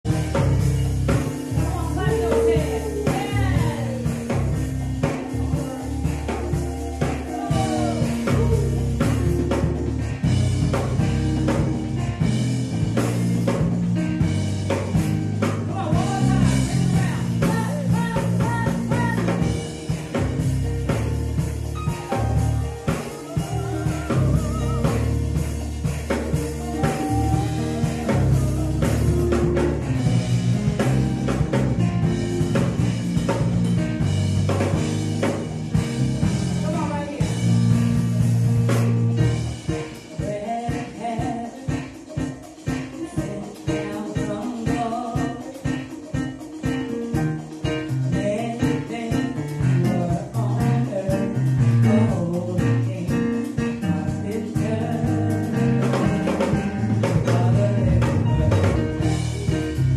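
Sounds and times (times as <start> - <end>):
upbeat gospel music: 0.0 - 59.9
woman singing: 1.6 - 9.0, 15.7 - 19.4, 26.6 - 29.8, 40.1 - 42.3, 42.9 - 45.7, 48.1 - 58.6.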